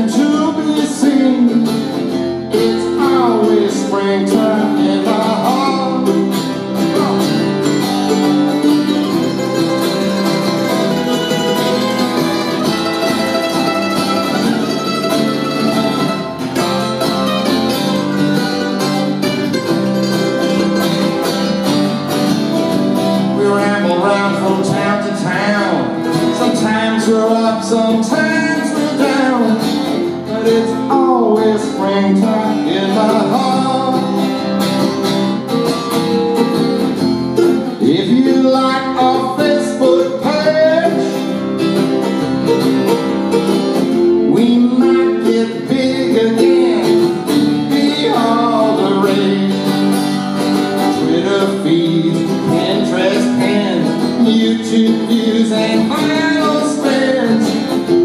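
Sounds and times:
man singing: 0:00.0 - 0:08.2, 0:23.2 - 0:34.5, 0:37.5 - 0:41.4, 0:43.9 - 0:58.0
strummed acoustic guitar: 0:00.0 - 0:58.0.

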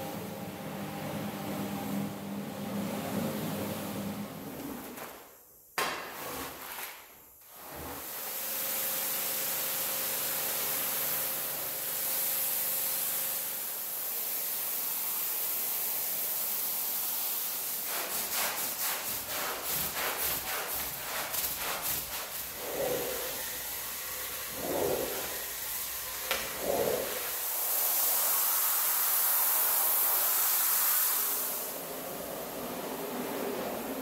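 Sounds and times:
push broom scrubbing rug: 0:06.0 - 0:08.3, 0:17.2 - 0:34.0
pressure washer spray hissing: 0:08.8 - 0:31.8.

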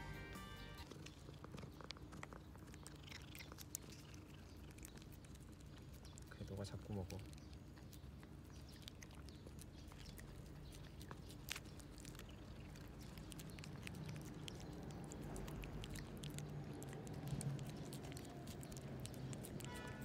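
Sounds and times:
low steady hum: 0:00.0 - 0:02.0
cat chewing food: 0:00.8 - 0:20.0.

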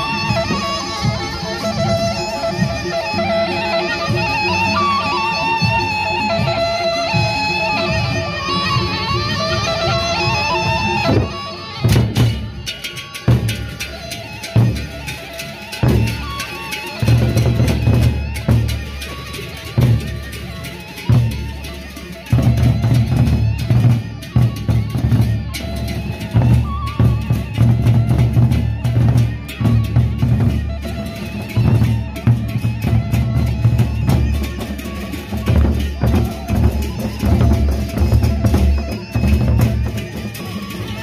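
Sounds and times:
barrel drums beaten fast: 0:11.1 - 0:41.0.

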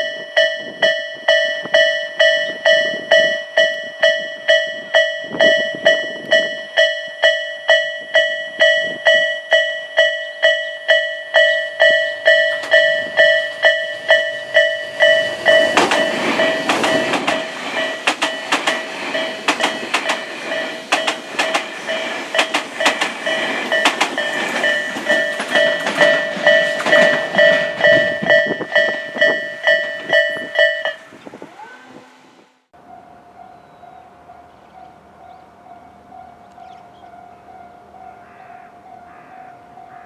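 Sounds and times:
train wheels clicking over rail joints: 0:00.0 - 0:31.1
level crossing warning bell: 0:00.0 - 0:32.2, 0:32.8 - 0:40.0
train running noise: 0:00.0 - 0:38.2.

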